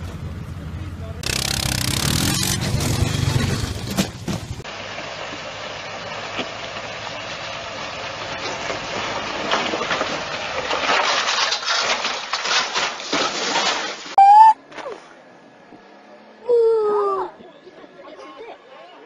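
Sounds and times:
truck engine running: 0.0s - 9.5s
truck crunching through brush: 1.2s - 14.2s.

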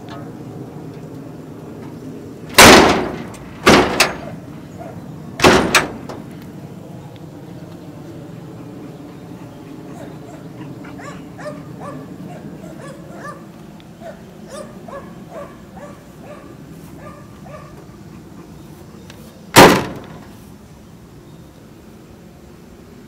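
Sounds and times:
steady low hum: 0.0s - 23.0s
dog yipping and whining: 9.8s - 13.4s, 14.0s - 17.7s.

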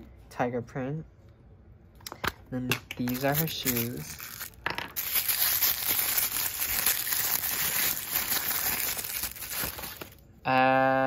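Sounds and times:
tissue paper crinkling: 3.1s - 10.2s.

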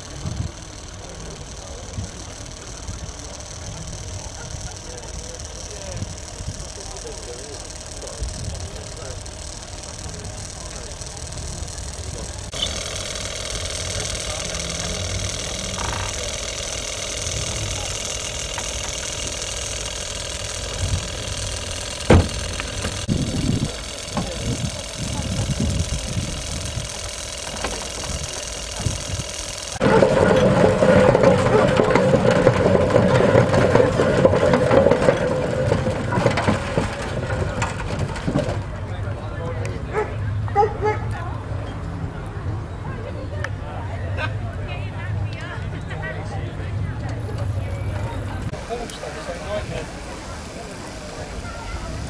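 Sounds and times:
engine running steadily: 0.0s - 52.0s.

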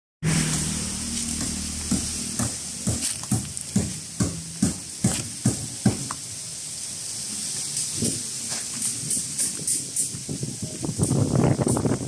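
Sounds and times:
steady high hiss: 0.2s - 12.0s
footsteps crunching on gravel: 1.0s - 6.2s.

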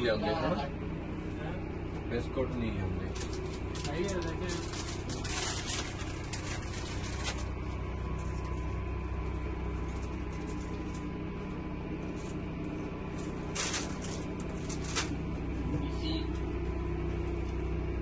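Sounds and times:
faint steady whine: 0.0s - 18.0s
motorhome running hum: 0.0s - 18.0s.

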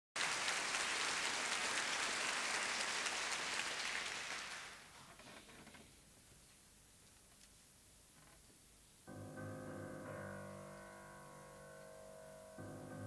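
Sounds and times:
audience applauding: 0.2s - 4.9s.

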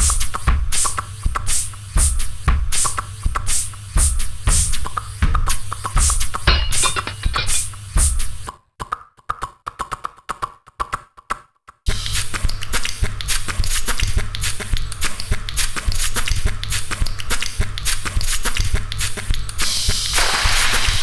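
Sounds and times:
steady low hum: 0.0s - 8.5s, 11.9s - 20.0s
choppy stuttering sounds: 2.8s - 7.6s, 8.2s - 19.7s
rapid clicks and hiss: 11.9s - 21.0s.

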